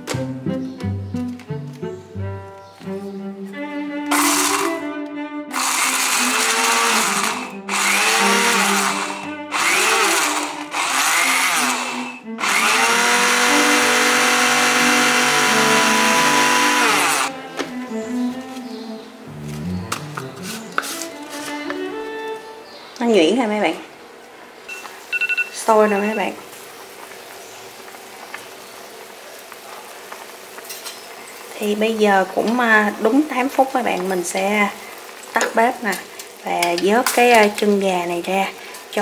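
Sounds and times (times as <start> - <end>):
background music: 0.0 - 23.5
electric blender chopping: 4.1 - 4.8, 5.5 - 17.3.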